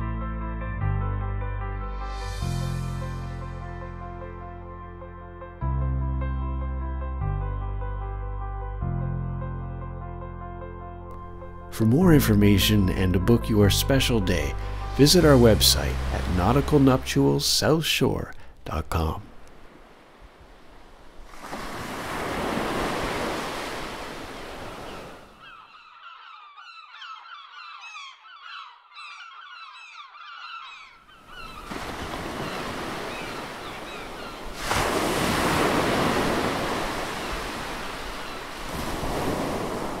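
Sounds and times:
birds chirping: 11.8s - 21.2s, 22.0s - 39.8s
ocean surf breaking on shore: 13.9s - 25.4s, 31.2s - 40.0s.

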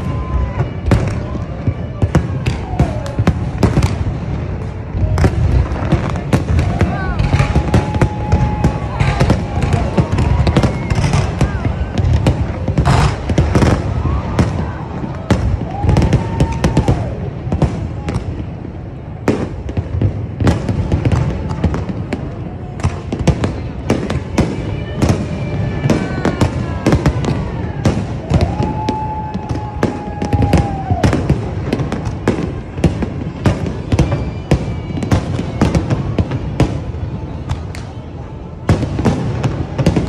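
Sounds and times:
fireworks bangs and crackling: 0.0s - 40.0s
fireworks whistling: 0.0s - 40.0s.

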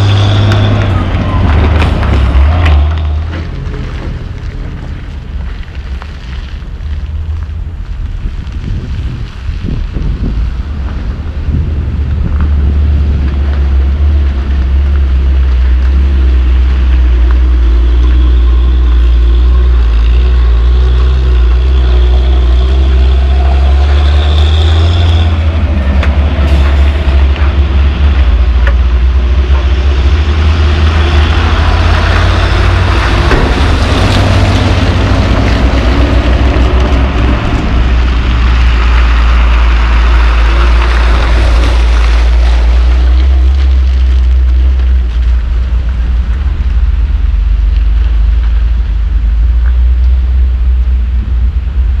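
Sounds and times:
dump truck diesel engines droning: 0.0s - 52.0s.

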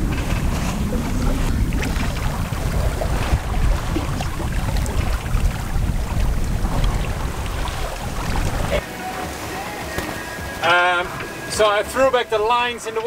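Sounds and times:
wind buffeting microphone: 0.0s - 8.8s
water rushing in boat wake: 0.0s - 13.0s.

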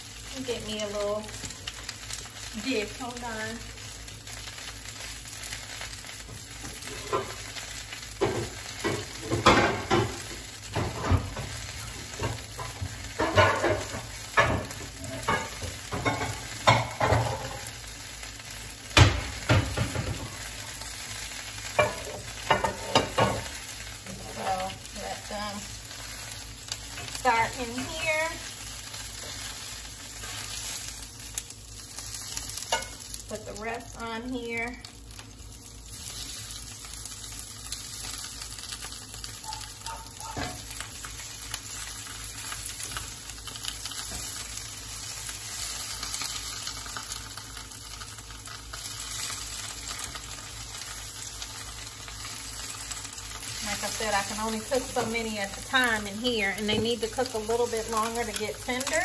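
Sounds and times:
fish sizzling in a frying pan: 0.0s - 59.0s.

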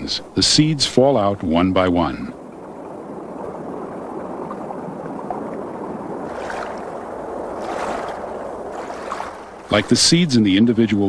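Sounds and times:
pond water lapping: 0.0s - 11.0s.

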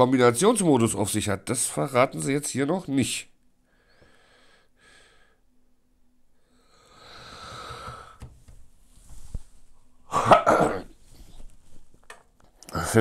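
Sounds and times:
man breathing out: 6.5s - 8.3s
man coughing: 10.1s - 11.0s.

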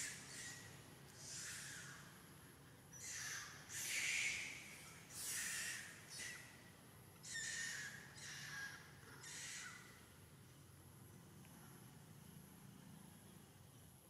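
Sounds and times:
harsh breathy animal calls: 0.0s - 2.1s, 3.0s - 6.5s, 7.2s - 9.9s.

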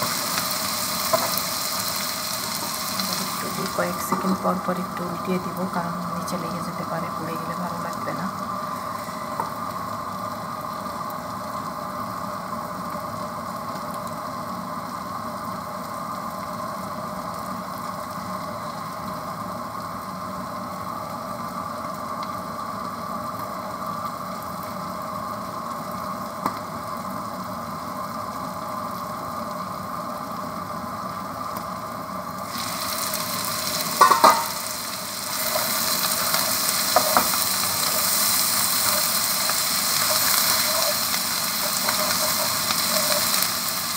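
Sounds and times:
food sizzling in a wok: 0.0s - 43.9s
metal lid clanks: 34.0s - 34.5s.

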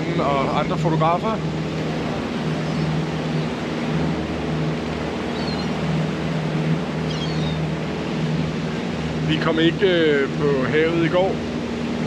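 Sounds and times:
boat engine droning: 0.0s - 12.0s
faint bird call: 5.3s - 5.8s, 7.0s - 7.7s.

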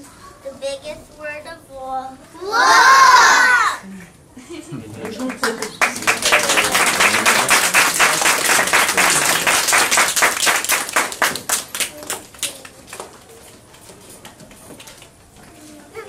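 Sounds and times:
audience applauding: 5.0s - 12.8s.

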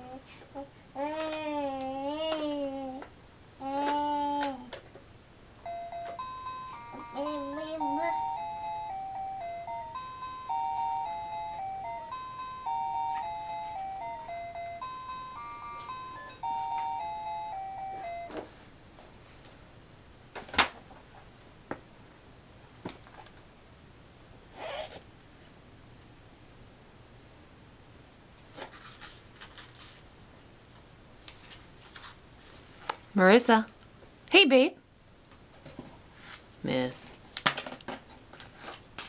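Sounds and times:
electronic toy beeping tune: 5.6s - 18.4s.

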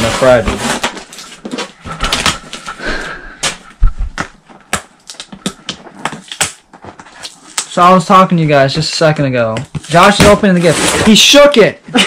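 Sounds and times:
cardboard rustling: 0.0s - 2.8s, 3.4s - 7.6s, 9.6s - 11.5s.

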